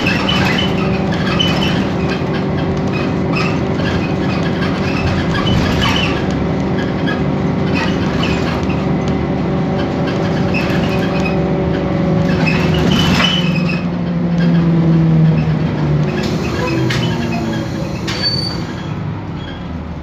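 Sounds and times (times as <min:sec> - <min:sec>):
bus diesel engine drone: 0:00.0 - 0:20.0
faint gearbox whine: 0:15.8 - 0:19.7.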